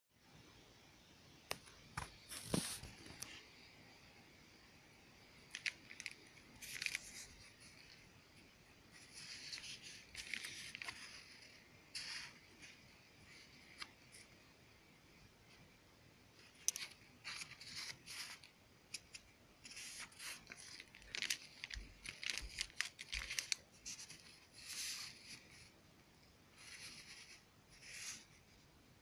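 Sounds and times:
paper plasters rustling and crinkling: 2.0s - 3.4s, 5.4s - 14.4s, 16.4s - 25.7s, 26.5s - 28.4s.

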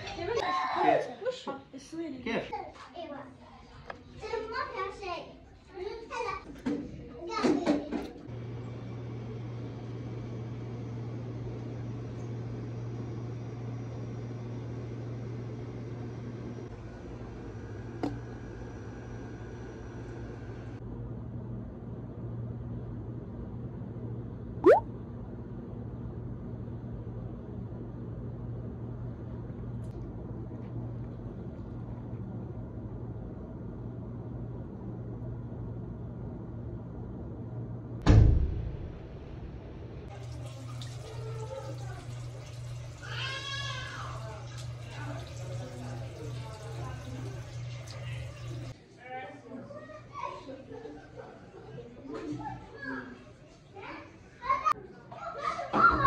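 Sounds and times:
loud thump: 38.0s - 39.2s.

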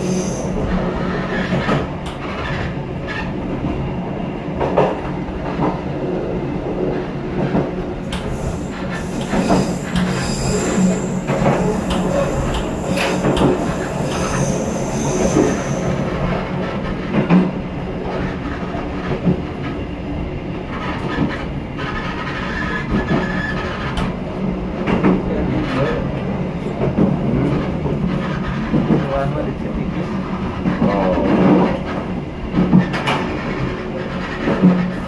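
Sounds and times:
train wheels rumbling on track: 0.0s - 35.0s
wheel flanges squealing: 8.4s - 16.2s.

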